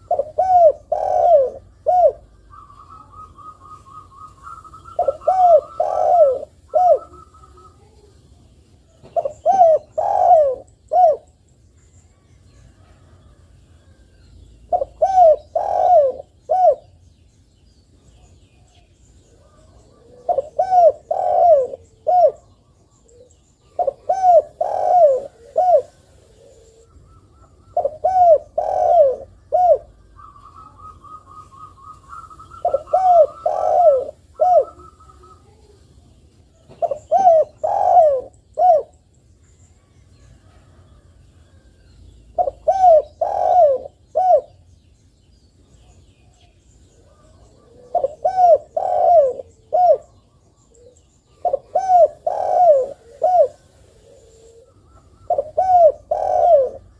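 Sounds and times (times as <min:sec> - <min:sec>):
dove cooing: 0:00.0 - 0:08.1, 0:09.0 - 0:11.4, 0:14.6 - 0:17.0, 0:19.2 - 0:35.8, 0:36.5 - 0:39.0, 0:42.3 - 0:44.6, 0:47.0 - 0:56.9.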